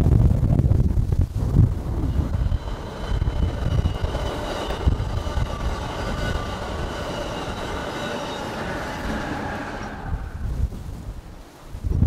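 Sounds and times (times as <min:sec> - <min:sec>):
train wheels rumbling on rail: 0:00.0 - 0:11.2
high-pitched whine: 0:01.3 - 0:10.8.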